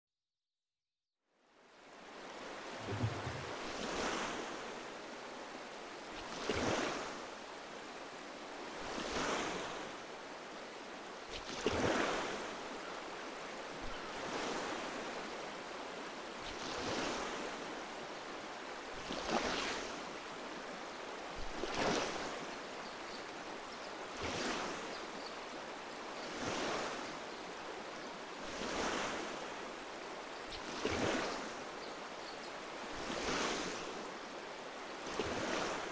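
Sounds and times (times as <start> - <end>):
moving water wash: 2.0 - 35.9
oars splashing in water: 2.8 - 4.5, 21.4 - 22.3.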